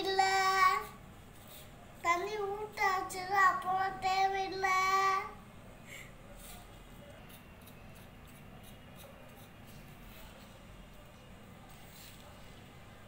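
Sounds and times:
fingers rubbing flour in a bowl: 6.3 - 11.0.

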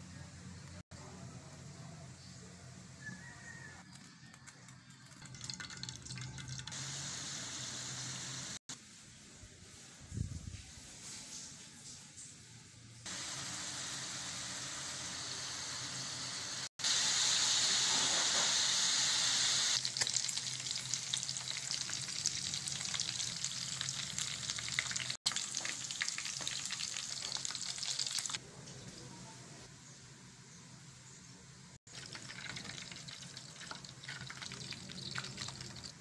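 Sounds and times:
oil crackling and spitting: 4.9 - 8.6, 19.7 - 28.4, 31.9 - 36.0
meat sizzling in hot oil: 6.6 - 8.6, 13.1 - 28.4, 31.9 - 36.0.

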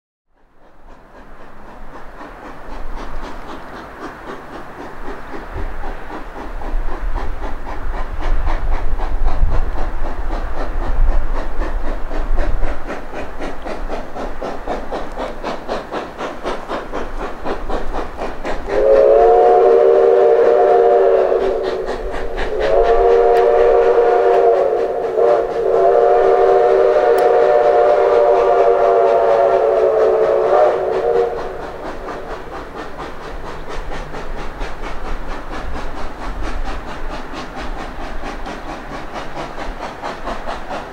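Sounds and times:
steam locomotive chuffing: 0.3 - 40.9
steam whistle blasts: 18.8 - 21.9, 22.5 - 31.8.

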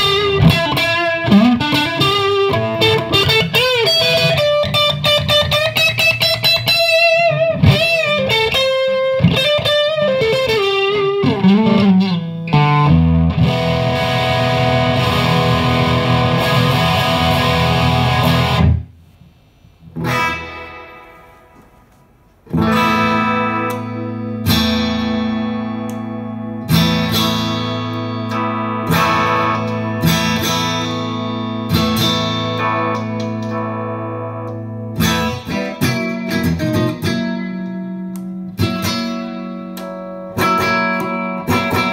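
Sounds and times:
electric guitar lead line: 0.0 - 18.9, 19.9 - 41.9
electric guitar strummed chords: 0.0 - 18.9, 19.9 - 41.9.

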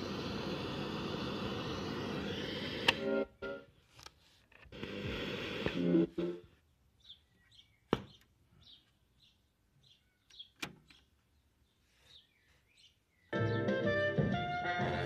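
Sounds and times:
faint bird chirps: 6.4 - 13.5
music from stereo: 13.3 - 15.0.

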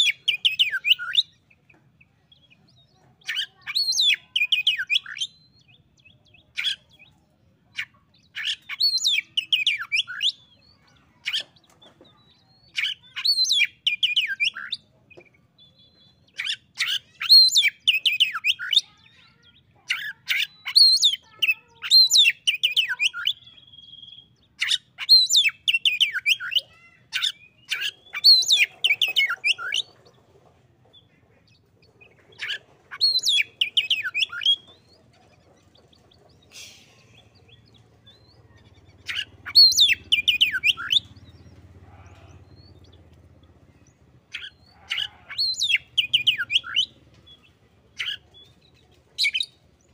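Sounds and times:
bird singing whistled phrases: 21.8 - 24.3, 39.1 - 41.1.

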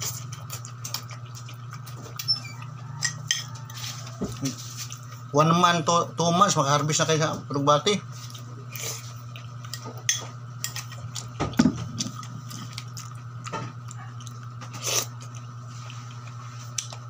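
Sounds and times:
soft chewing: 0.0 - 5.3, 8.2 - 17.0
steady low hum: 0.0 - 17.0
spoon scraping on plate: 3.0 - 4.9.

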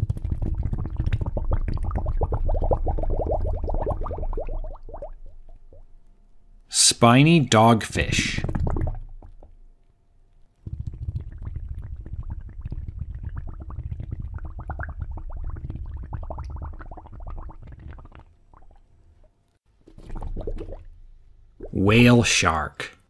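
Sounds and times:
water bubbling and gurgling: 0.0 - 6.0, 8.0 - 9.6, 10.7 - 18.9, 19.9 - 21.8.

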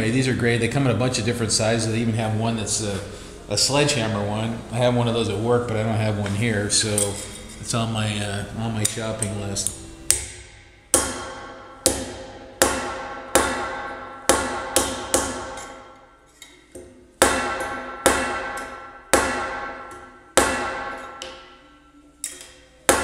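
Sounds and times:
hammer striking sheet metal: 10.1 - 21.7, 22.3 - 23.0.

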